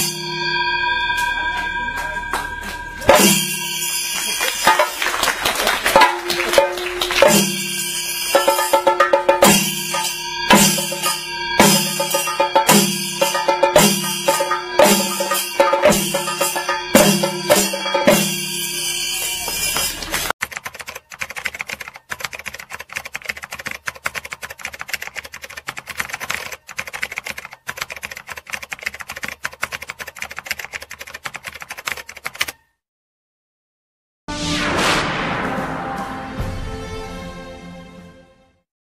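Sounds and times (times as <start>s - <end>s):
drums with cymbals: 0.0s - 5.2s, 5.9s - 20.3s
rapid typewriter-like clicking: 20.2s - 32.6s.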